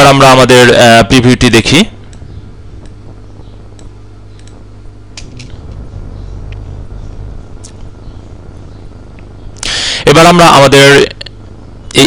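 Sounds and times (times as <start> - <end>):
computer hum: 0.0 - 12.0
faint mouse clicks: 3.8 - 4.6.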